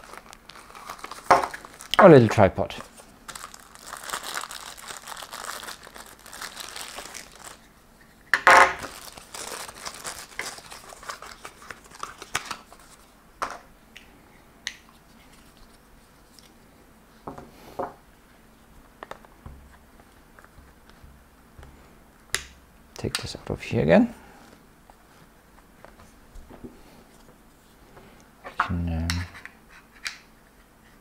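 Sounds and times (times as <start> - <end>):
packaging crinkling and rustling: 0.0 - 7.8, 8.7 - 13.1.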